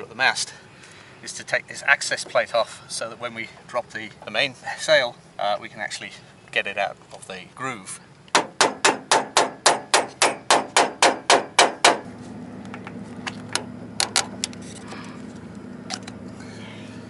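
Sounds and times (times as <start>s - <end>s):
steady low hum: 0.0s - 17.0s
sharp metal taps: 8.3s - 12.1s.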